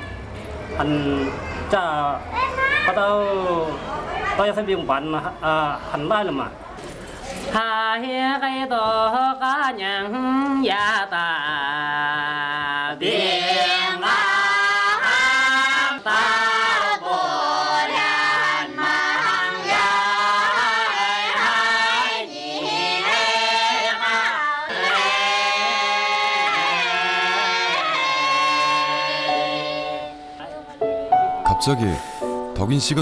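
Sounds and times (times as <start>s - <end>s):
group singing with held notes: 7.6s - 30.4s.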